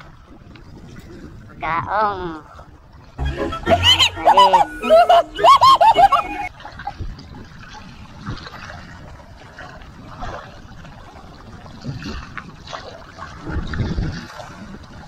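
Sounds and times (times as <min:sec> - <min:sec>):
small waves lapping: 0:00.0 - 0:15.0.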